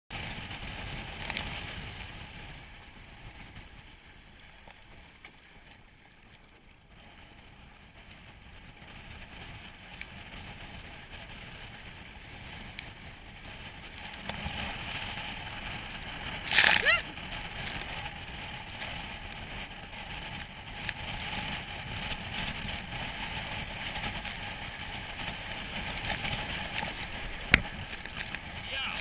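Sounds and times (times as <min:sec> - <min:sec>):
water splashing along hull: 0:00.1 - 0:29.0
wind buffeting microphone: 0:06.9 - 0:29.0.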